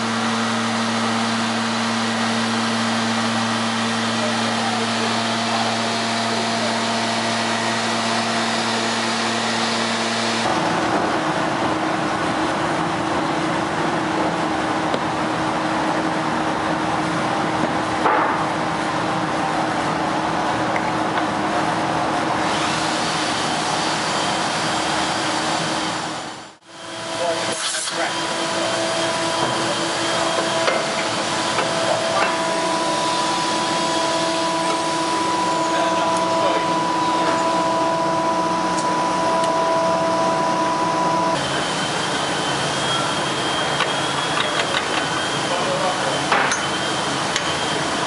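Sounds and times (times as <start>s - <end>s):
woodworking machinery running: 0.0s - 48.0s
thin whine tones: 26.3s - 48.0s.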